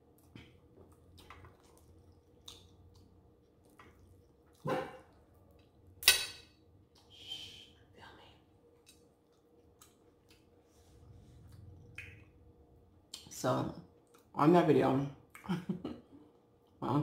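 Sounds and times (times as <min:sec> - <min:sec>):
wet chewing: 0:00.1 - 0:05.8, 0:08.7 - 0:12.4.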